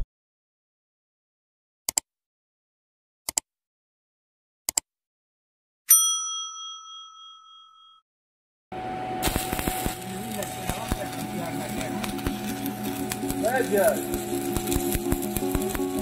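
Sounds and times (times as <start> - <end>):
bright bell ding: 5.9 - 8.0.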